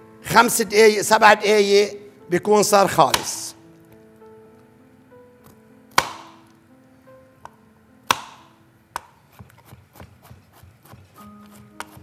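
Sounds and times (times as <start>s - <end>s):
soft background music: 0.0s - 12.0s
knife chopping on cutting board: 3.1s - 3.4s, 5.9s - 6.4s, 8.1s - 12.0s.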